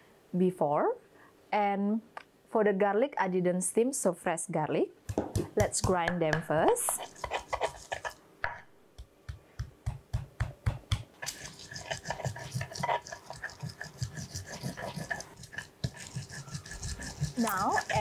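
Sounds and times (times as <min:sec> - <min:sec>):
stone pestle pounding in mortar: 0:05.1 - 0:18.0.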